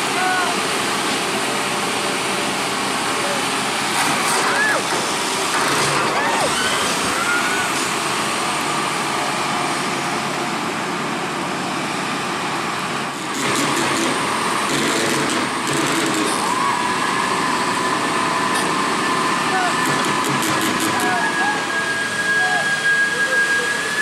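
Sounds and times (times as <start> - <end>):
excavator diesel engines droning: 0.0 - 24.0
faint high whine: 21.0 - 24.0.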